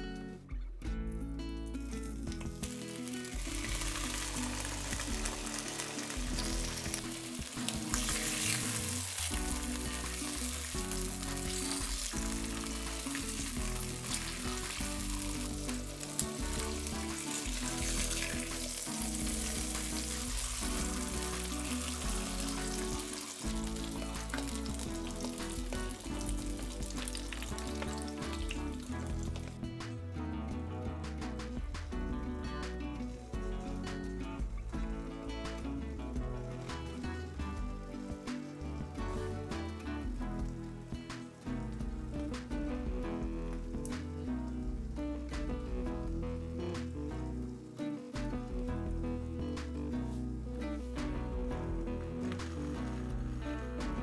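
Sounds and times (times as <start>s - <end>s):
background music: 0.0s - 54.0s
ham sizzling in a frying pan: 1.9s - 29.6s.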